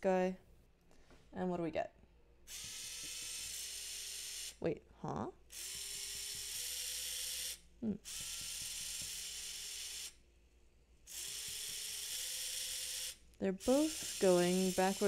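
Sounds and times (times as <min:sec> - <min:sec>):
small motors whirring: 0:02.5 - 0:04.6, 0:05.5 - 0:10.2, 0:11.1 - 0:15.0.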